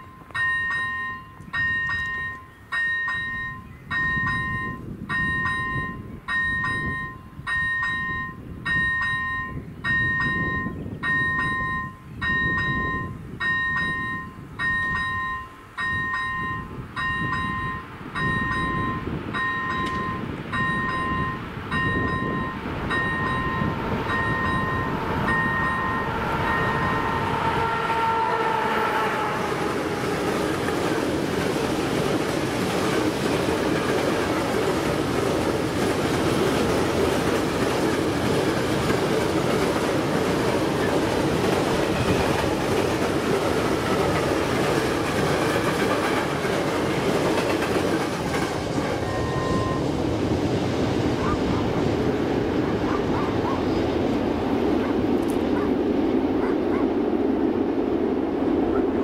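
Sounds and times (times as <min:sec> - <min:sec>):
level crossing warning bell: 0:00.0 - 0:28.2, 0:49.0 - 0:50.6
freight train rumble: 0:00.0 - 0:59.0.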